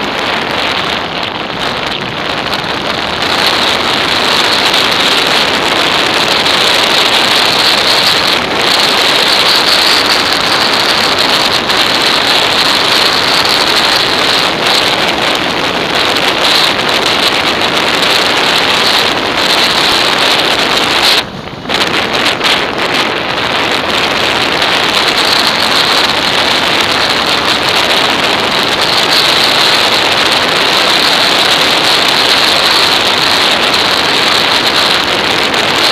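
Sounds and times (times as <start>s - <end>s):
wind roaring over microphone: 0.0s - 35.9s.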